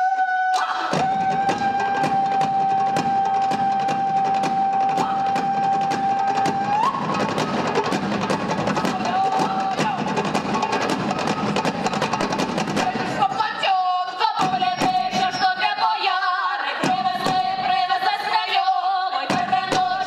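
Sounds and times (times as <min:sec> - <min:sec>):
hand drums beating fast: 0:00.9 - 0:13.6.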